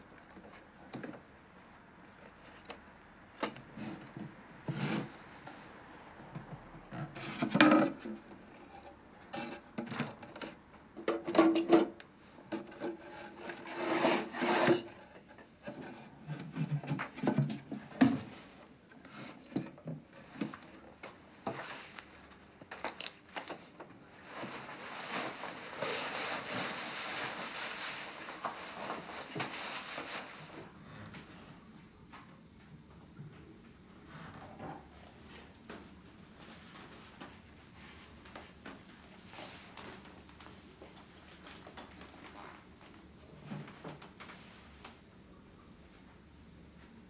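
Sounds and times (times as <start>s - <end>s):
wooden cabinet scraping and knocking: 12.6s - 18.5s.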